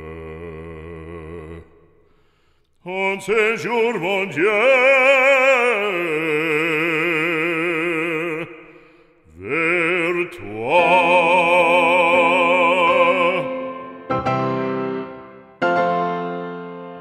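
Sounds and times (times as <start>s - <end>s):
operatic male voice singing: 0.0s - 1.9s, 2.8s - 14.1s.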